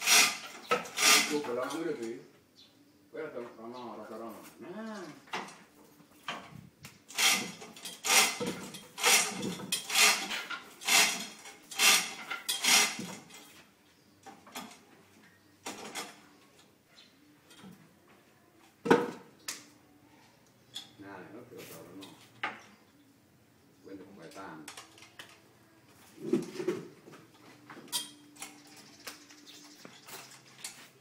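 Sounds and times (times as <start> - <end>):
chain hoist clanking and rattling: 7.1 - 13.6.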